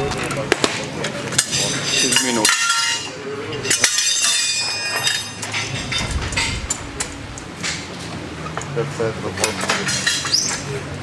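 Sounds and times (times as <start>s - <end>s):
metal tire levers clinking on rim: 1.3s - 8.7s, 9.4s - 10.7s.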